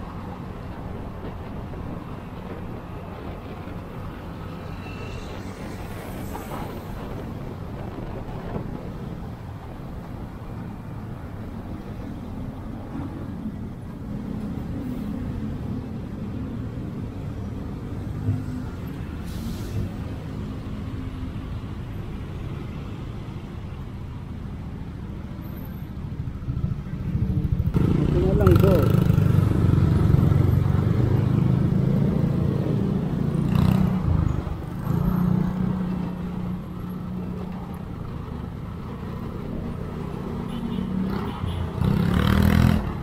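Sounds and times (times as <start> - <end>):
wind buffeting the microphone: 0.0 - 11.6
road and wind noise: 0.0 - 43.0.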